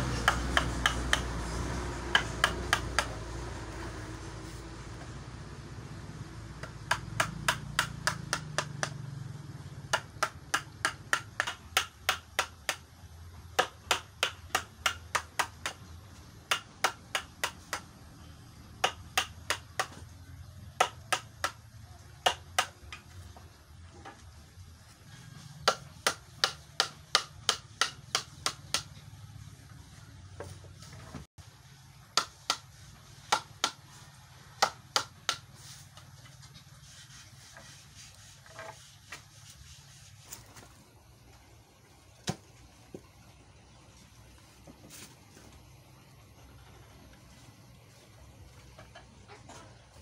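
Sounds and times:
hammer tapping chisel on wood: 0.0s - 3.2s, 6.6s - 9.0s, 9.9s - 12.9s, 13.6s - 18.0s, 18.8s - 21.6s, 22.2s - 23.0s, 25.6s - 29.0s, 32.2s - 32.7s, 34.6s - 35.5s.

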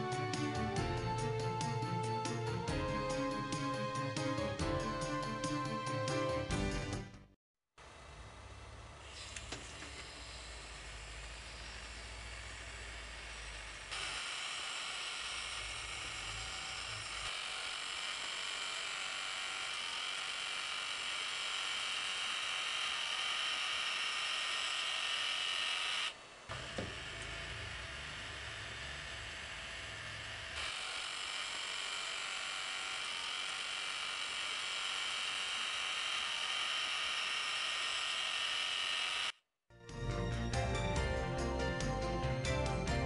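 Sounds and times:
small electric motor whirring: 8.7s - 39.4s.

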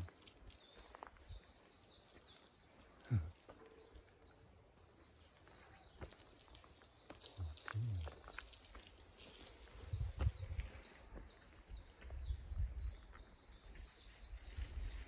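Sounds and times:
small birds chirping: 0.0s - 15.0s
brief low voice: 3.0s - 3.3s, 7.4s - 8.1s.

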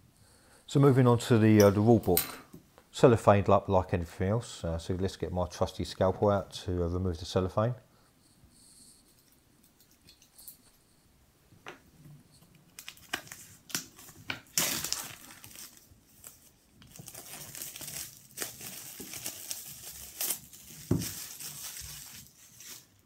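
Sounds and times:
cellophane crinkling: 12.3s - 23.0s.

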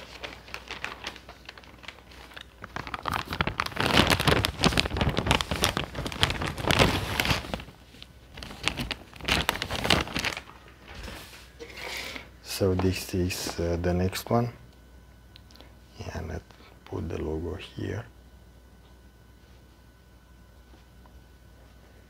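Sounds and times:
plastic packaging crinkling: 0.0s - 14.2s.

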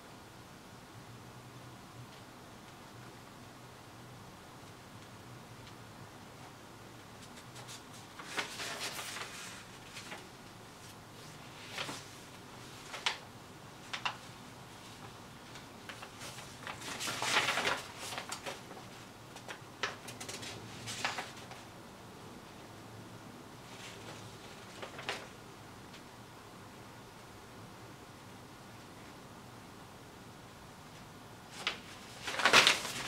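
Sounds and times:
paper rustling: 7.1s - 21.7s, 23.6s - 25.4s, 31.5s - 33.0s.

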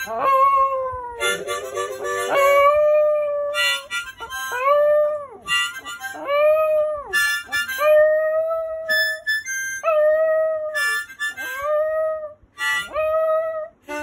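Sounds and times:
puppy howling: 0.0s - 3.9s, 4.5s - 9.2s, 9.8s - 13.8s
harmonica chords: 1.2s - 2.9s, 3.5s - 4.9s, 5.5s - 6.4s, 7.1s - 8.0s, 8.9s - 9.8s, 10.8s - 11.7s, 12.6s - 14.0s.

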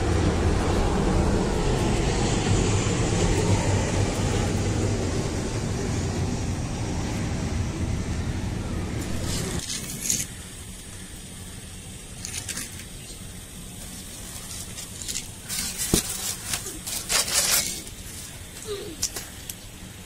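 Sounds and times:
low rumble: 0.0s - 10.1s.

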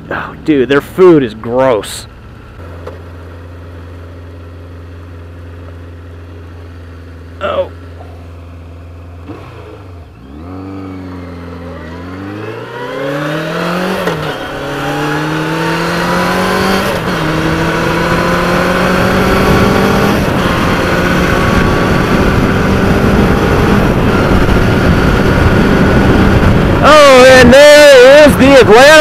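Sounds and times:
motorcycle engine accelerating: 2.2s - 29.0s
wind noise: 14.6s - 29.0s.

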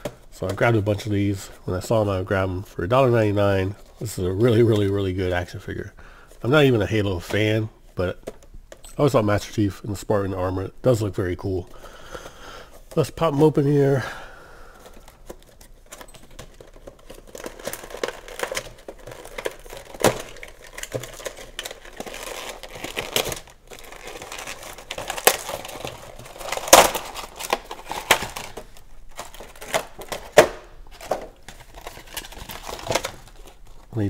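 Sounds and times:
plastic packaging crinkling: 11.5s - 34.0s.

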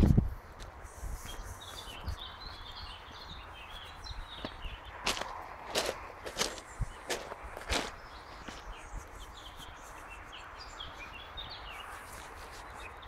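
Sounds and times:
small birds chirping: 0.6s - 13.0s
footstep on gravel: 3.8s - 10.4s.

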